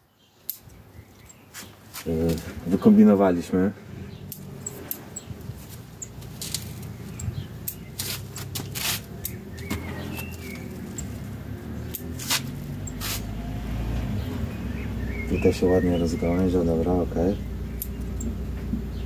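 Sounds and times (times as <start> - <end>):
low steady hum: 2.4 - 19.0
scissors snipping leaves: 4.3 - 13.4, 17.7 - 18.2.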